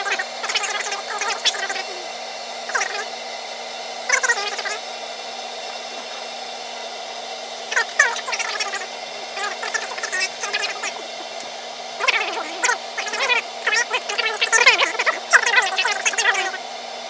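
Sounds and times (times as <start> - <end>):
water gurgling: 7.7 - 16.6.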